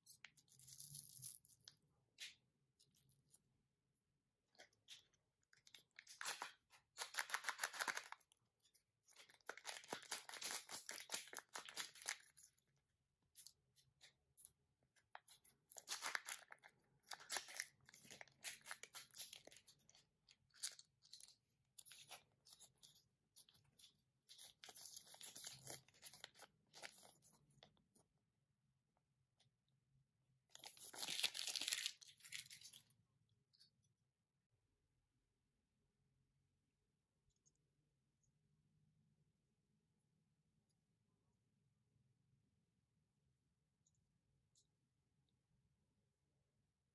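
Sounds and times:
plastic packaging crinkling and tearing: 5.7 - 8.2, 9.1 - 12.4, 15.7 - 22.6, 24.3 - 27.1, 30.5 - 32.8.

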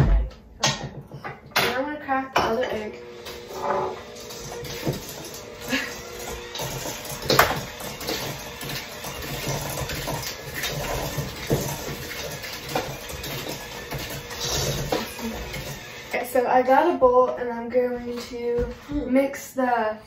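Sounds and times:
bowls and utensils clattering: 0.6 - 16.1.

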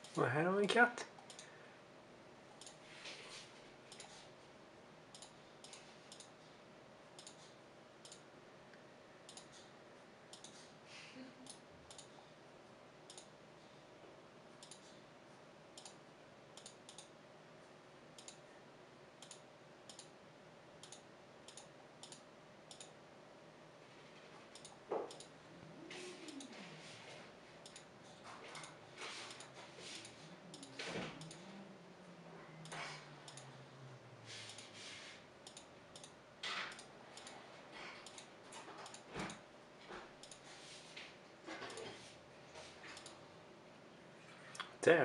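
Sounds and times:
faint steady hum: 0.0 - 45.0
sharp computer control clicks: 5.1 - 6.3, 7.2 - 7.4, 8.0 - 8.3, 13.1 - 13.3, 14.6 - 14.8, 15.8 - 16.0, 16.6 - 17.2, 18.2 - 18.4, 19.2 - 20.2, 20.8 - 23.0, 24.5 - 25.4, 30.5 - 31.5, 32.6 - 33.5, 35.4 - 37.3.

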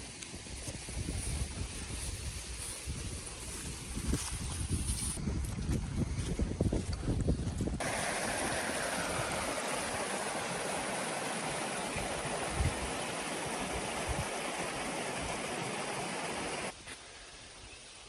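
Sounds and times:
creek rushing over riffles: 7.8 - 16.7.

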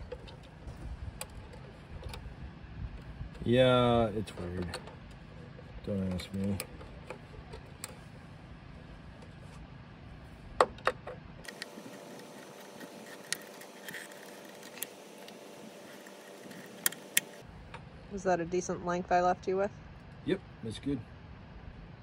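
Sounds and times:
wire handling noise: 10.6 - 17.8
sharp clicks: 11.4 - 17.4.

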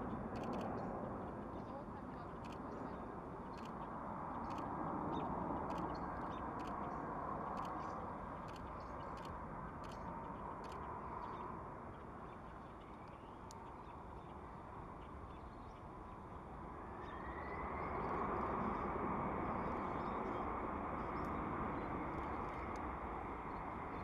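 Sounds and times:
distant jet engines rushing: 0.0 - 24.0
jet engine whine: 16.4 - 24.0.

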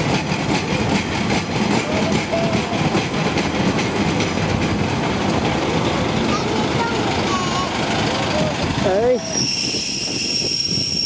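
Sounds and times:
diesel railbus engine: 0.0 - 11.0
faint wheel squeal: 9.2 - 11.0.

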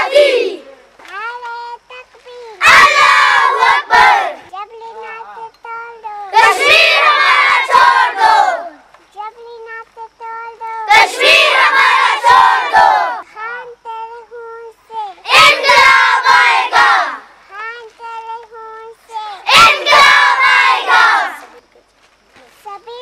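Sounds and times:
children shouting in unison: 0.0 - 0.8, 2.4 - 4.5, 6.3 - 8.8, 10.9 - 13.2, 15.3 - 17.2, 19.3 - 21.5
child singing a held line: 0.0 - 21.6.

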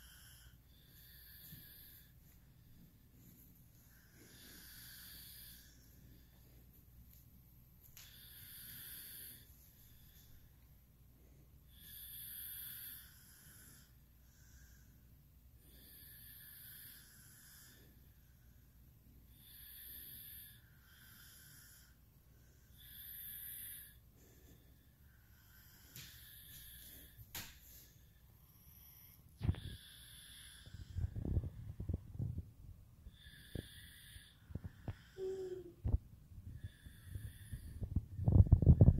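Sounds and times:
person breathing in sleep: 0.0 - 2.4, 3.8 - 6.8, 8.0 - 31.9, 33.1 - 35.9, 36.5 - 38.9
low steady hum: 0.0 - 38.9
child breathing wheezily: 33.2 - 35.8.

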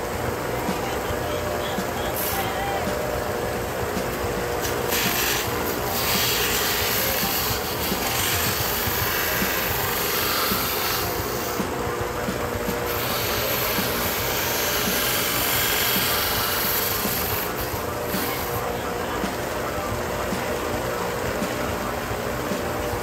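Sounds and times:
sander motor humming: 0.0 - 23.0
leather rubbing on sanding belt: 4.9 - 11.7, 12.9 - 18.6.

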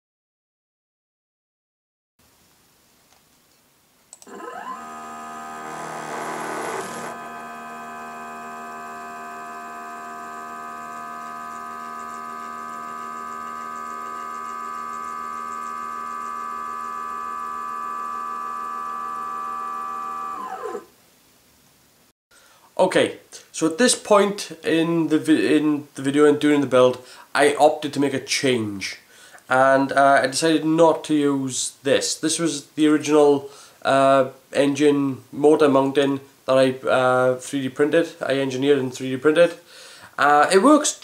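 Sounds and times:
stepper motors whining: 4.2 - 20.9.

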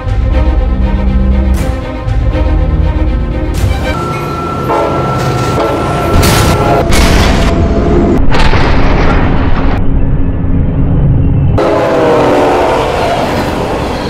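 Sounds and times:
explosion booms: 6.2 - 7.6, 8.2 - 10.0.

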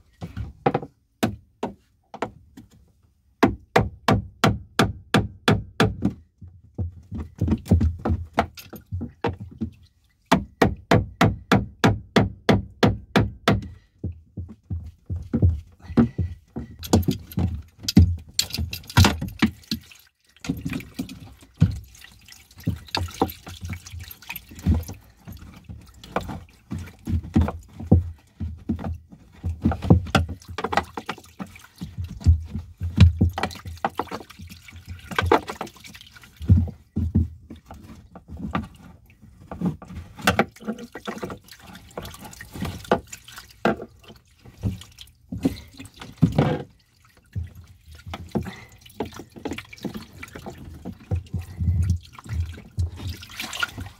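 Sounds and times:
water spurting and splashing: 7.2 - 10.3, 15.0 - 53.9
tool knocking and clattering: 14.4 - 19.8.

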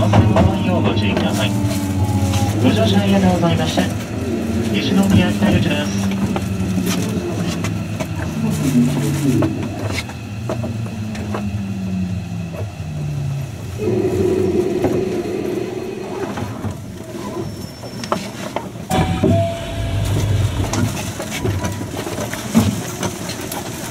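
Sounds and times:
low hum of train equipment: 0.0 - 23.9
low rumble: 18.9 - 22.9.

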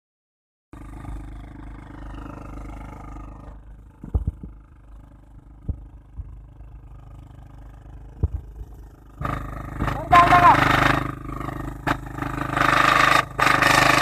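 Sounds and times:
small engine running: 0.8 - 14.0
loud noise: 9.2 - 14.0.

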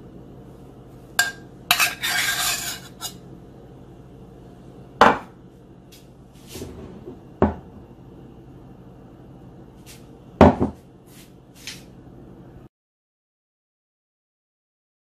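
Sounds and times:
steady low hum: 0.0 - 12.7
mug and pitcher knocking and clinking: 10.4 - 10.8.

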